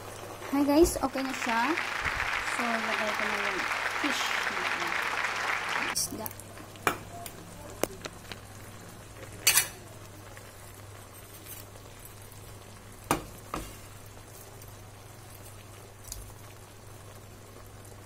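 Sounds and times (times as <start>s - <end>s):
sauce bubbling in a pot: 0.0s - 3.7s, 6.2s - 18.0s.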